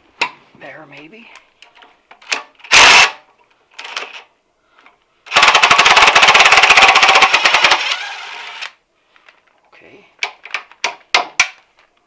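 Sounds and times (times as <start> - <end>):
impact driver spinning: 5.3 - 8.8.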